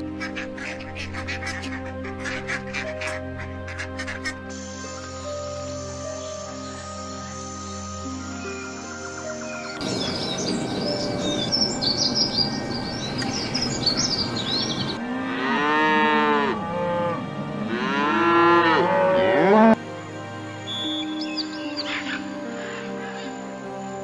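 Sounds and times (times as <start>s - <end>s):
small songbird twittering: 9.4s - 15.0s
cows mooing: 14.6s - 19.8s.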